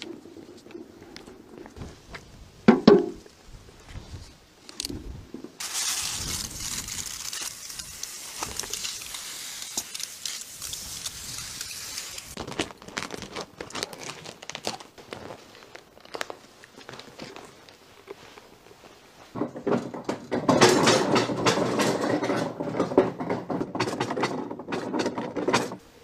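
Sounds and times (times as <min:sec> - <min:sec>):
clicks and rustles of handling: 0:04.6 - 0:25.8
hose nozzle spraying water: 0:05.6 - 0:12.4.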